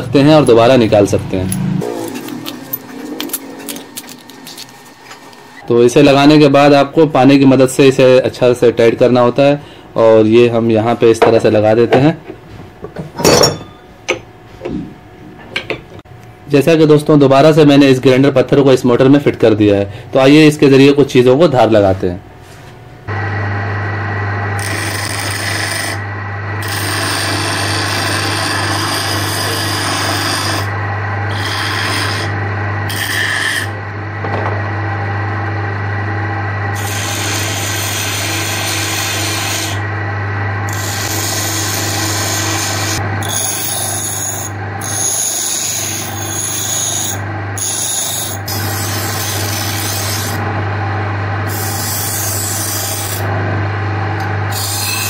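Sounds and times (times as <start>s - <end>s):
bench grinder motor humming: 23.1s - 55.0s
steel grinding on stone: 24.6s - 26.0s, 26.6s - 30.7s, 31.3s - 33.8s, 36.8s - 39.8s, 40.7s - 50.4s, 54.5s - 55.0s.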